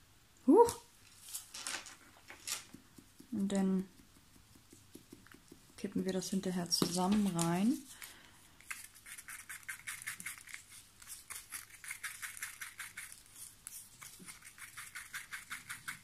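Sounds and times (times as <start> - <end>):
stick scraping round a mixing cup: 2.6 - 8.0.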